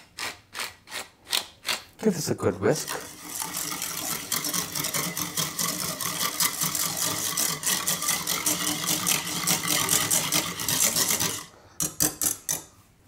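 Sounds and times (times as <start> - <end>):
whisk beating in a bowl: 2.7 - 12.6.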